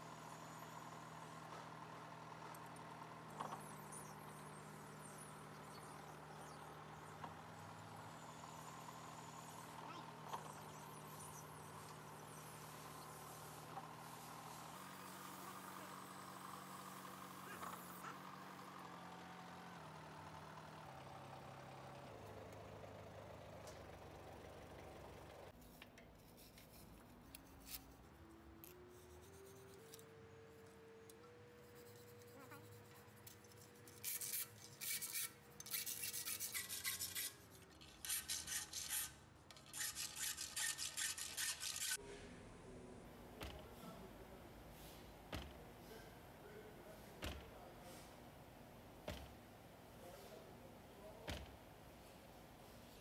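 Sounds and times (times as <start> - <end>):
hand tool rasping: 31.8 - 42.0.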